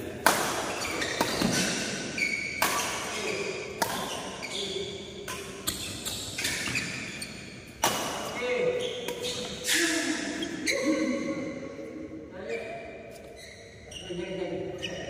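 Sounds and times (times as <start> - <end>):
racket hitting shuttlecock: 0.1 - 4.4, 7.7 - 8.4, 9.0 - 10.3
sneakers squeaking on court: 0.7 - 11.0, 12.5 - 15.0.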